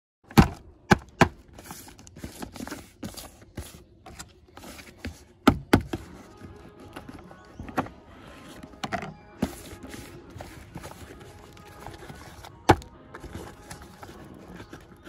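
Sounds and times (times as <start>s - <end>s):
thumps and taps on packaging: 5.1s - 6.1s
packaging rustling: 9.4s - 15.0s.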